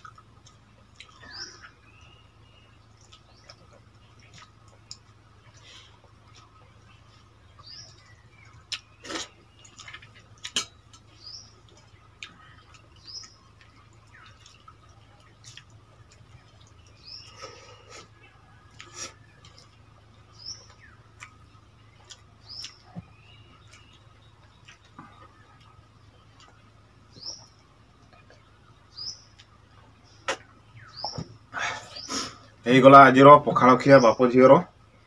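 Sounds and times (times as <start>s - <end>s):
high bird chirps: 28.2s - 32.5s.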